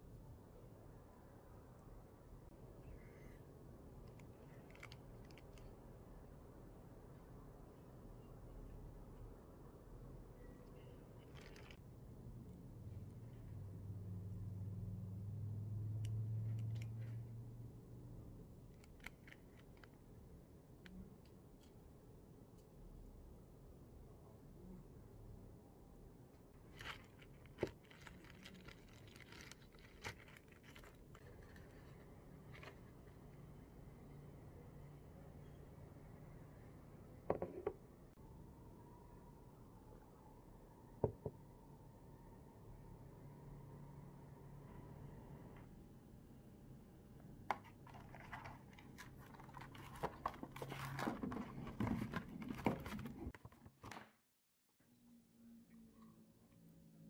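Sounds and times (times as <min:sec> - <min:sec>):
plastic bag rustling: 0:26.7 - 0:31.9, 0:47.8 - 0:53.3
cardboard rustling and scraping: 0:47.5 - 0:54.0.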